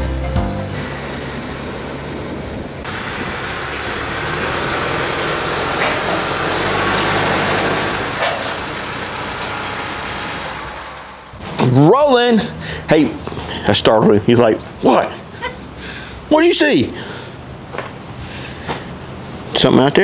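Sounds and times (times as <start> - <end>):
tractor diesel engine running: 0.0 - 16.3.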